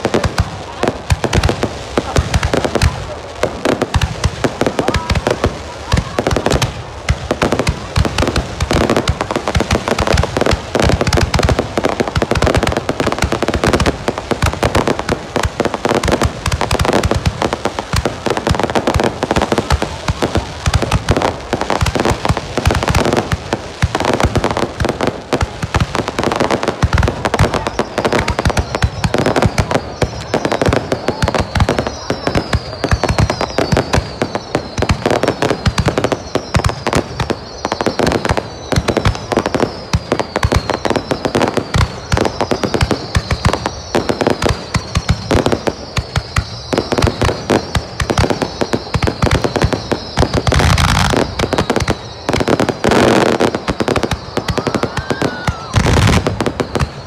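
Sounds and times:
fireworks bangs and crackles: 0:00.0 - 0:57.0
high falling whistles: 0:45.0 - 0:57.0.

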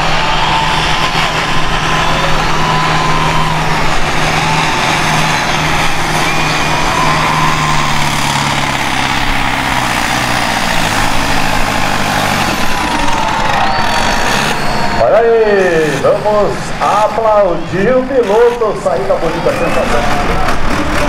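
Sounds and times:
tractor engine running hard: 0:00.0 - 0:21.0.

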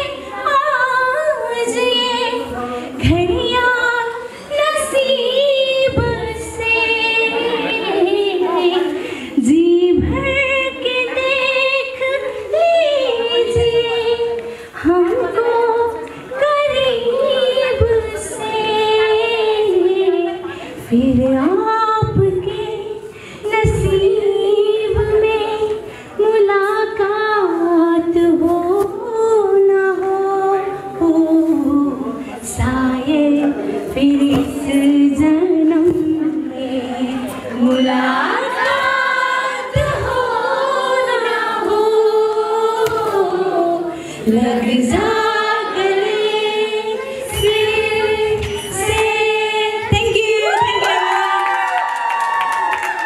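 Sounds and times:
woman singing slow song: 0:00.0 - 0:52.1
low thumps: 0:39.7 - 0:40.4.

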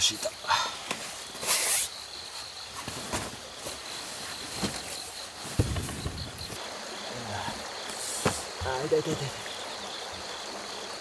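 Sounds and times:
crickets trilling: 0:00.0 - 0:11.0
soft knocks of camp gear: 0:02.7 - 0:06.3.

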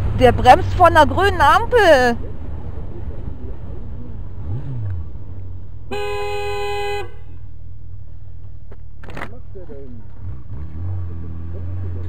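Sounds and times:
motorcycle engine rumble: 0:00.0 - 0:12.0
vehicle horn: 0:05.9 - 0:07.5.

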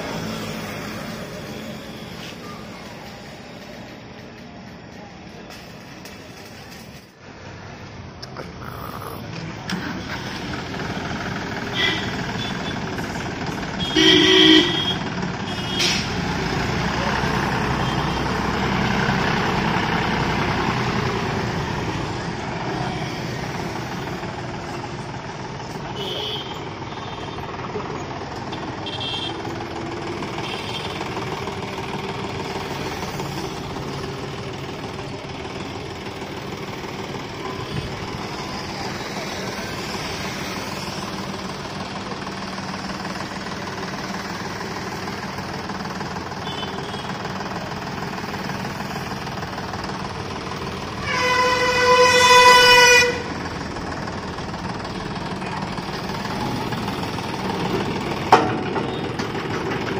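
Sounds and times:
tractor diesel engine running: 0:00.0 - 0:07.2, 0:09.2 - 0:59.9
vehicle horn toot: 0:11.7 - 0:12.8, 0:13.8 - 0:16.0, 0:26.0 - 0:27.4, 0:28.8 - 0:29.4, 0:46.4 - 0:47.2, 0:51.0 - 0:53.3.

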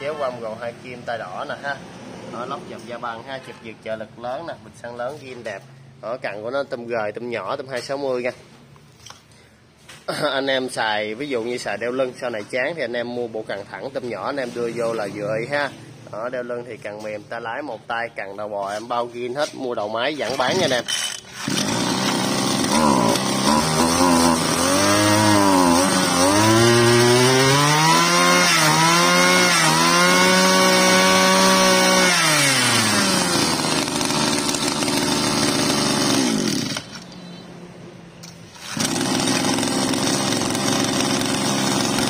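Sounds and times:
brush cutter engine revving: 0:20.2 - 0:37.2, 0:38.2 - 0:42.0.

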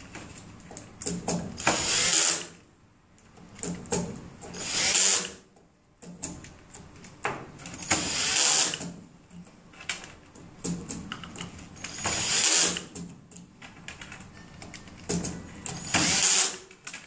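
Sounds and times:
hand tools clicking and tapping: 0:00.1 - 0:01.8, 0:03.2 - 0:04.6, 0:05.5 - 0:08.1, 0:08.7 - 0:17.0
cordless drill driving screws: 0:01.6 - 0:02.6, 0:04.5 - 0:05.4, 0:07.8 - 0:08.8, 0:11.8 - 0:12.9, 0:15.8 - 0:16.6.

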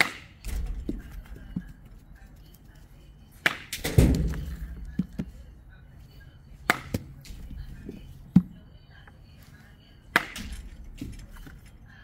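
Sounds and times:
bat striking baseball crack: 0:06.6 - 0:07.1.

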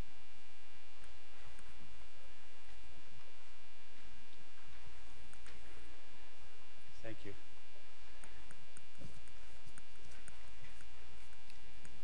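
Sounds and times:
electrical mains hum: 0:00.0 - 0:12.0
faint ticks: 0:04.0 - 0:05.8, 0:08.1 - 0:12.0.

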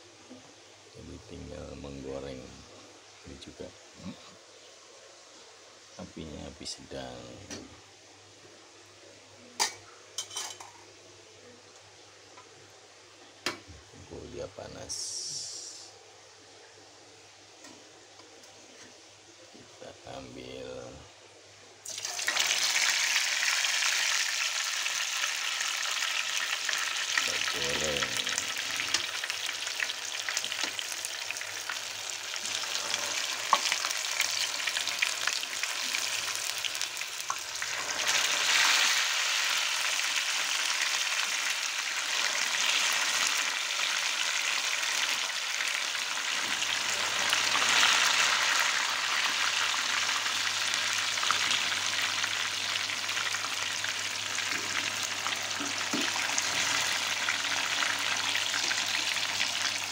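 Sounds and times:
tofu frying in hot oil: 0:21.8 - 0:59.9.

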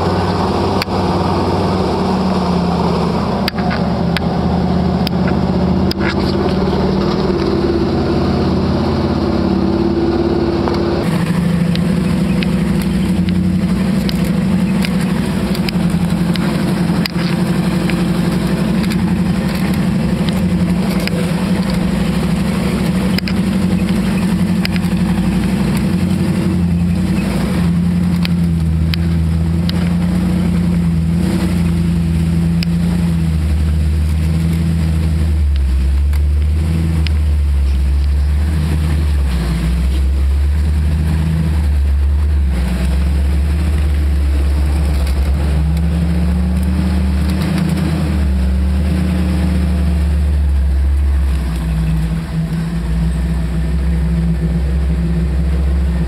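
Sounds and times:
off-road vehicle engine running: 0:00.0 - 0:56.0.

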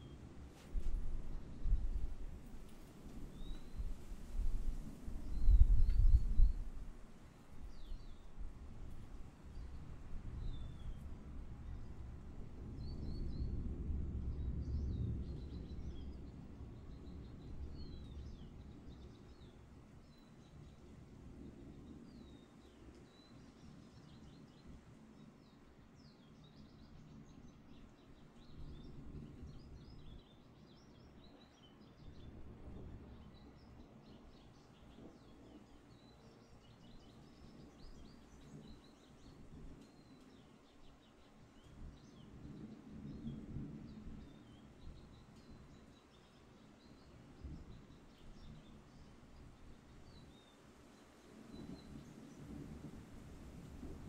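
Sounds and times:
thunder rumbling: 0:51.6 - 0:54.0.

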